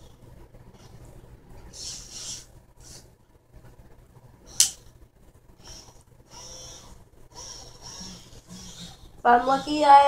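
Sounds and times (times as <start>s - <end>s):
small gear motors whirring: 1.8s - 3.0s, 5.6s - 9.7s
sharp click: 4.6s - 4.8s.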